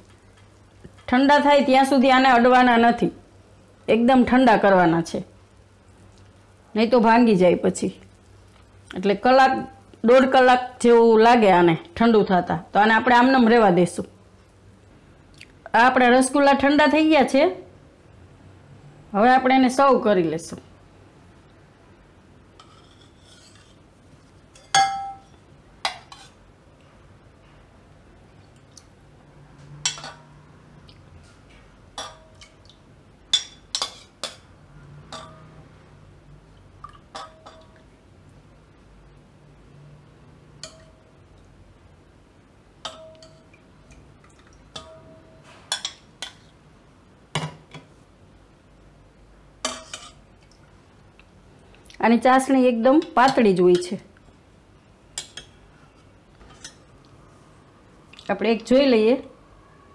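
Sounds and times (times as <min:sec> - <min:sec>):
ladle scraping in pot: 0:22.6 - 0:23.9, 0:25.9 - 0:26.4, 0:49.7 - 0:50.2
metal ladle clinking on dishes: 0:24.5 - 0:26.3, 0:29.8 - 0:30.4, 0:32.0 - 0:32.6, 0:33.3 - 0:34.4, 0:35.1 - 0:35.6, 0:37.1 - 0:37.8, 0:40.6 - 0:41.1, 0:42.8 - 0:43.6, 0:44.7 - 0:46.5, 0:49.6 - 0:50.2.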